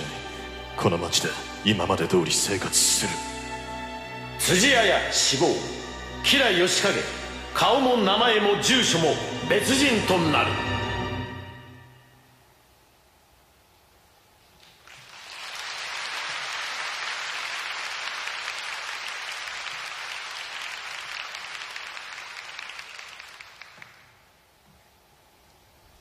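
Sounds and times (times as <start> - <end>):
audience applauding: 14.6 - 24.2.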